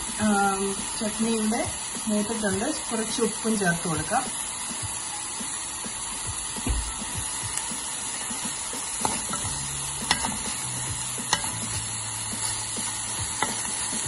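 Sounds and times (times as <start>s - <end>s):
food sizzling in oil: 0.0s - 14.0s
spoon stirring in a pan: 7.6s - 14.0s.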